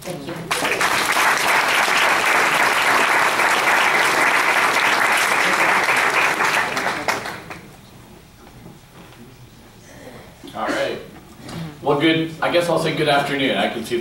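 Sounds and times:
audience applause: 0.5s - 7.7s.

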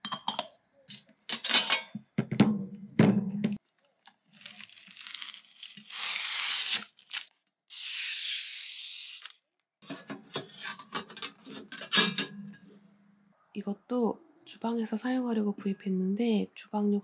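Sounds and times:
plastic film peeling off: 3.7s - 7.9s.

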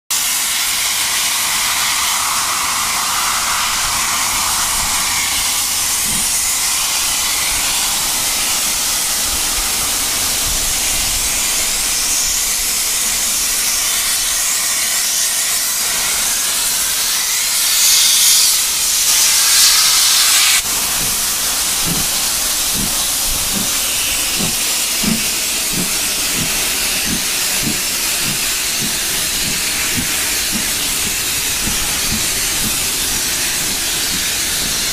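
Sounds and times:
steam hissing: 0.1s - 34.9s
regular low beat: 20.8s - 34.9s.

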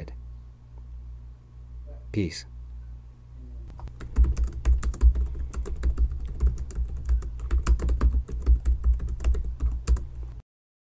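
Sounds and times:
rapid clicks and taps: 3.7s - 10.2s.

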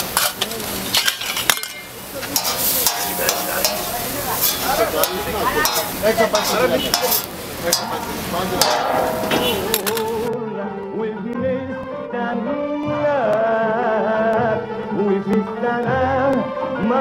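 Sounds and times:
food sizzling on a griddle: 0.0s - 10.3s
metal spatula scraping: 0.1s - 10.3s.

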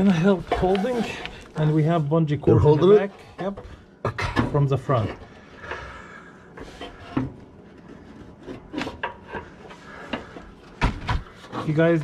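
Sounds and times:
exhaust pipe scraping: 0.0s - 3.5s.

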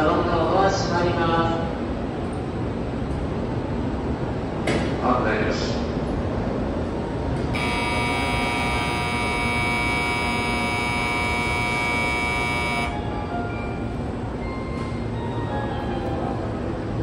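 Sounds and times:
electronic departure bell buzz: 7.6s - 13.0s
steady hum: 7.6s - 13.0s.

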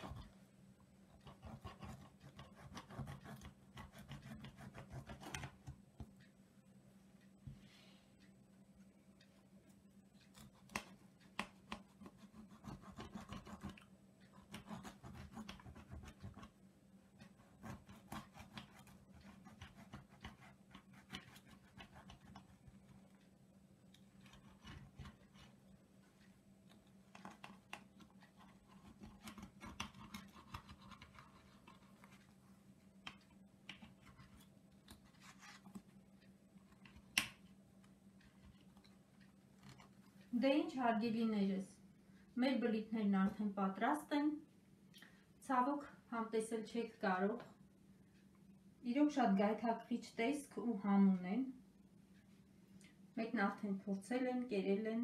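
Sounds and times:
knife sawing through crisp bread: 17.5s - 22.5s.

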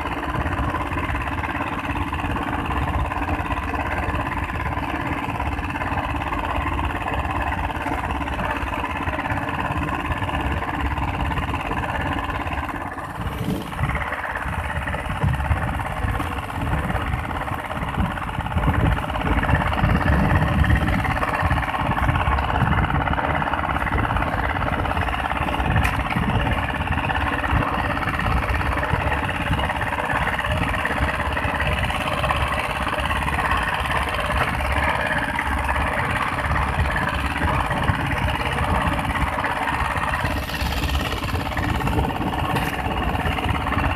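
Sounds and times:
boat engine running: 0.0s - 43.9s
wind gusts on microphone: 13.1s - 31.3s.

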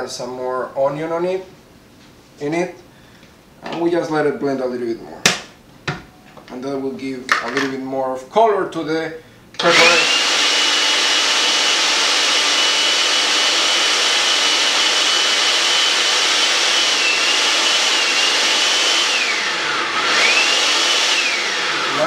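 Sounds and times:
blender motor whining: 9.6s - 22.0s.

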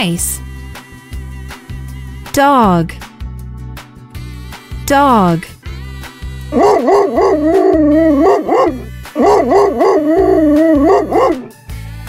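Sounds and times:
background music with steady beat: 0.0s - 12.0s
dog howling: 6.6s - 11.5s.

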